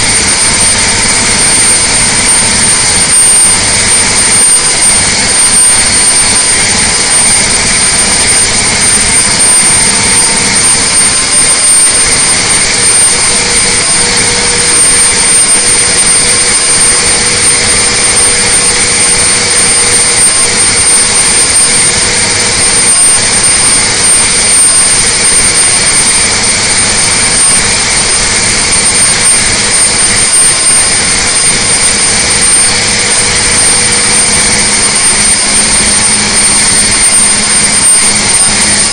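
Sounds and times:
diesel engine roaring: 0.0s - 38.9s
steady high whine: 0.0s - 38.9s.

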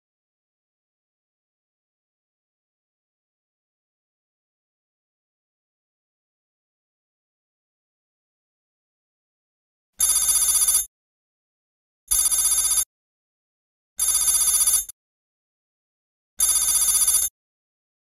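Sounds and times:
trilling telephone bell ring: 10.0s - 10.9s, 12.1s - 12.9s, 14.0s - 14.9s, 16.4s - 17.3s.

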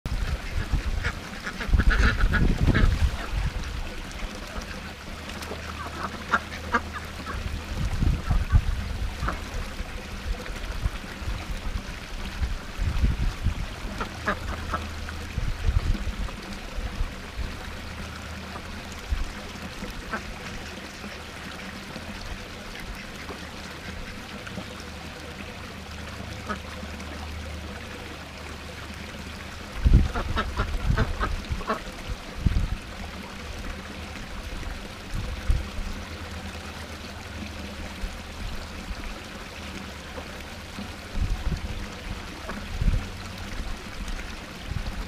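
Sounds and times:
ducks quacking: 0.1s - 3.8s, 4.5s - 7.5s, 13.9s - 15.0s, 20.0s - 21.2s, 30.1s - 31.9s
small waterfall splashing: 0.1s - 45.0s.

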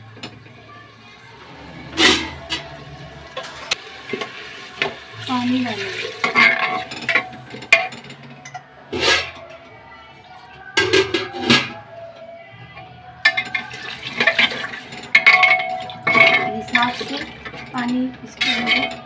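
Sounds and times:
metal spoon scraping a pot: 1.8s - 5.0s, 13.3s - 19.0s
spoon clinking against pot: 6.2s - 9.6s, 13.2s - 19.0s.

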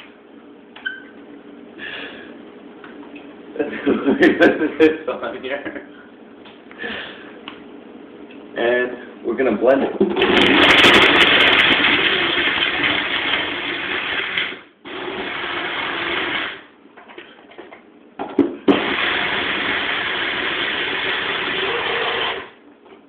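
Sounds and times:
small blender running: 10.2s - 16.7s, 18.7s - 22.6s.

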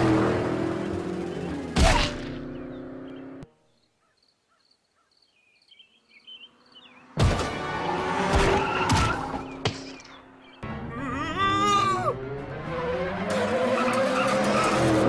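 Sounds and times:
faint bird chirps: 2.5s - 7.1s.

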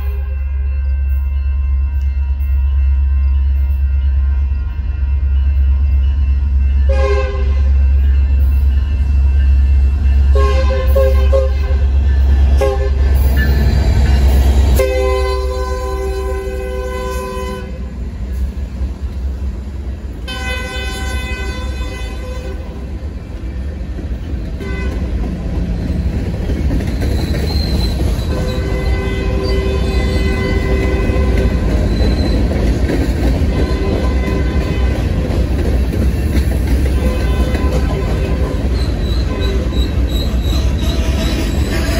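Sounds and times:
freight train rumbling past: 0.0s - 41.9s
locomotive air horn blasts: 6.9s - 7.8s, 10.3s - 11.9s, 12.6s - 13.1s, 14.8s - 17.9s, 20.2s - 22.8s, 24.6s - 25.1s, 28.3s - 31.6s, 33.5s - 35.2s, 36.9s - 41.9s
wheels squealing: 25.8s - 34.4s, 36.0s - 41.9s.

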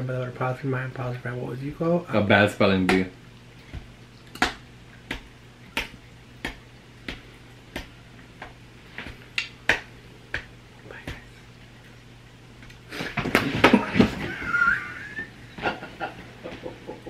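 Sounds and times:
faint low hum: 0.0s - 17.0s
sharp rhythmic clicks: 4.3s - 8.6s.

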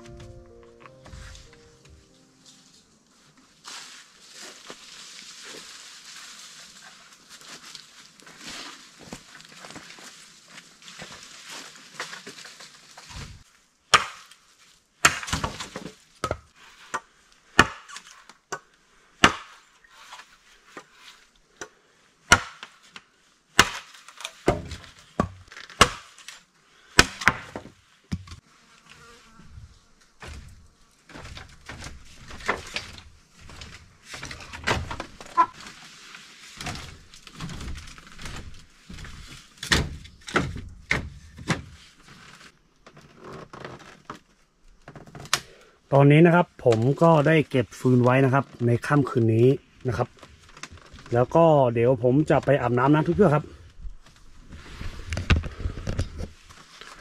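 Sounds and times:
bamboo poles and wood clattering: 0.0s - 2.8s, 3.4s - 28.4s, 30.1s - 45.6s, 46.2s - 57.0s
faint insect buzz: 28.4s - 30.6s.

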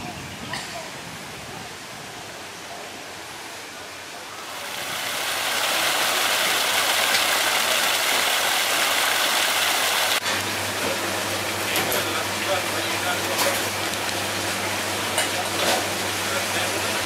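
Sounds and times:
water jets splashing into pool: 4.1s - 17.0s.

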